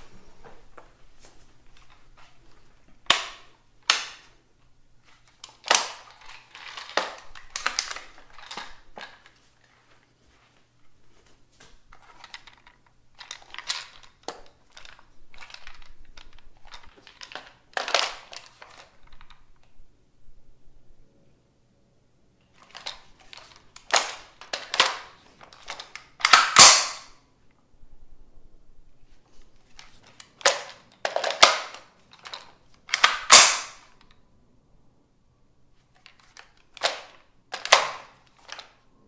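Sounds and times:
rifle metallic clacks and clicks: 3.0s - 4.3s, 5.3s - 9.4s, 11.9s - 19.4s, 22.6s - 27.2s, 29.7s - 34.2s, 36.0s - 38.8s.

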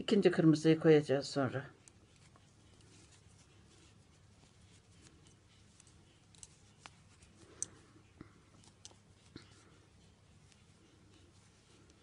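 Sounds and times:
knitting needles clicking: 1.8s - 9.6s.

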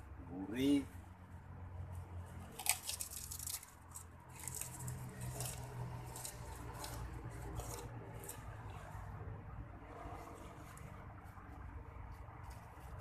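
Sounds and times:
person chewing crunchy food: 2.5s - 8.9s.

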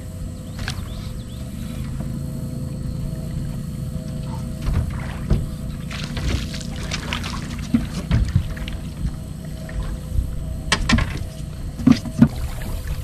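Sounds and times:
fish splashing in water: 2.6s - 13.0s.

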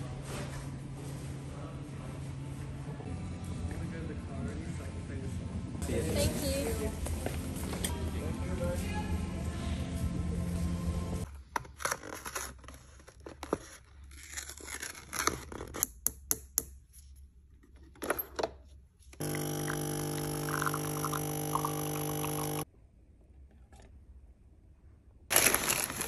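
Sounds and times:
coffee machine pump humming: 19.2s - 22.7s.

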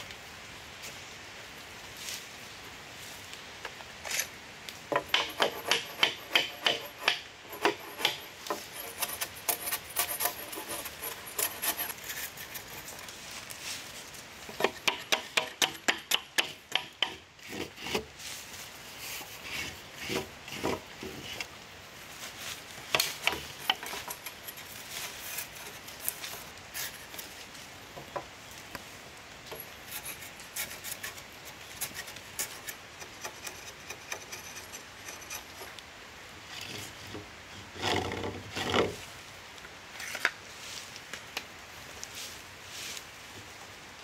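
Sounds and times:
hand tool rasping wood: 4.9s - 13.1s, 14.5s - 18.1s, 22.9s - 27.2s, 29.5s - 35.8s.

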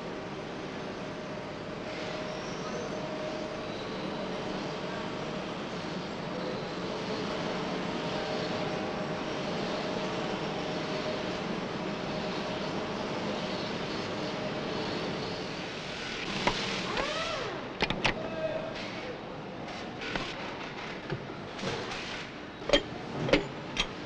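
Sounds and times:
sharp metallic clicks: 22.7s - 24.0s.

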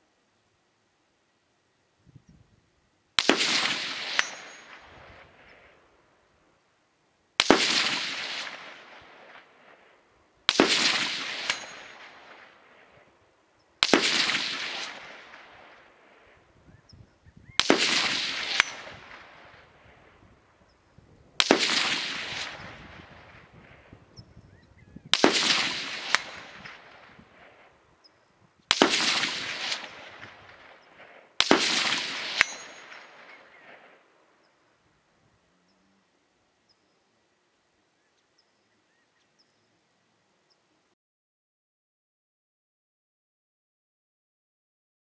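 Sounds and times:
bullet pinging steel target: 3.2s - 5.0s, 10.5s - 12.2s, 17.6s - 19.1s, 31.4s - 33.6s
rifle shots with echo: 3.2s - 6.0s, 7.4s - 13.2s, 13.8s - 16.5s, 17.5s - 20.2s, 21.4s - 24.1s, 25.1s - 27.8s, 28.7s - 34.4s.

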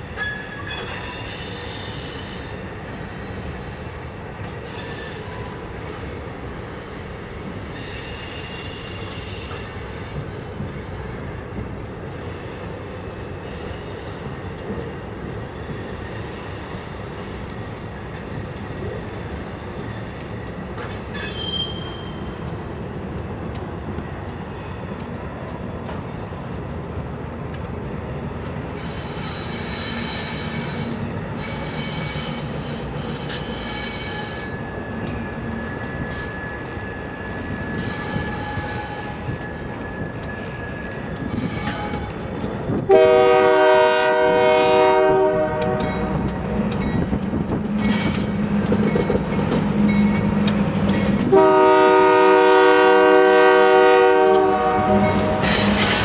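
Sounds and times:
train wheel squeal: 0.0s - 3.7s, 4.4s - 5.7s, 7.2s - 11.0s, 12.1s - 14.8s, 15.4s - 22.6s, 28.5s - 43.1s, 45.8s - 51.9s, 52.8s - 56.0s
freight train rumbling: 0.0s - 56.0s.

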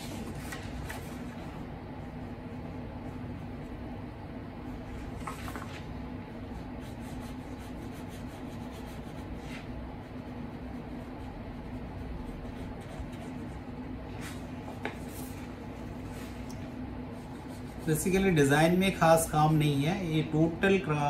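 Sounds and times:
steady low hum: 0.0s - 21.0s
pen scratching on paper: 6.6s - 13.7s.

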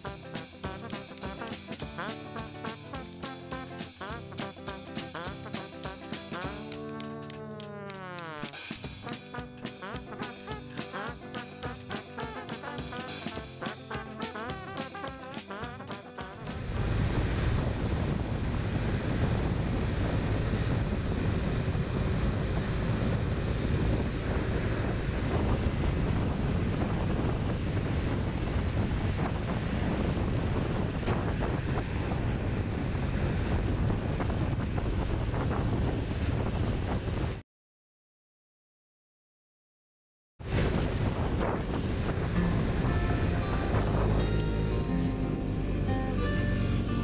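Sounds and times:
wind buffeting microphone: 16.5s - 37.4s.

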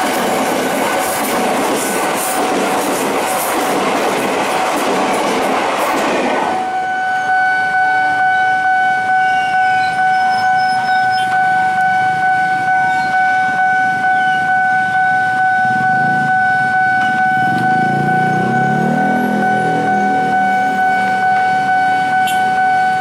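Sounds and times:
passing train rail noise: 0.0s - 23.0s
level crossing alarm pulsing: 6.4s - 23.0s.

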